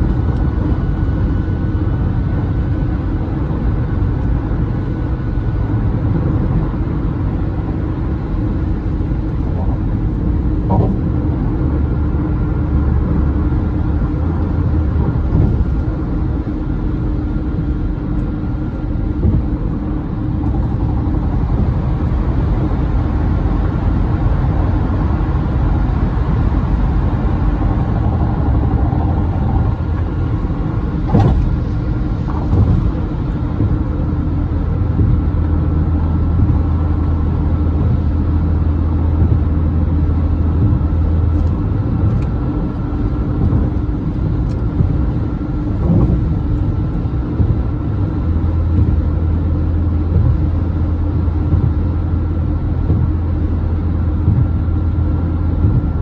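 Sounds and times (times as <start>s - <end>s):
car tyre rumble: 0.0s - 56.0s
short thumps: 9.6s - 11.3s, 29.6s - 34.1s, 34.8s - 38.2s, 40.4s - 49.3s, 52.8s - 53.4s, 54.1s - 54.8s, 55.4s - 56.0s.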